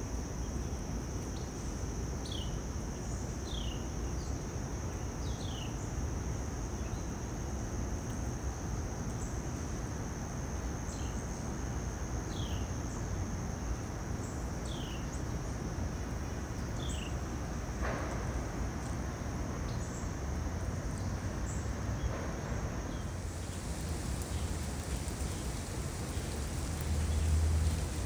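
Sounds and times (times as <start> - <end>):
high insect trill: 0.0 - 28.0
light rain hiss: 0.0 - 28.0.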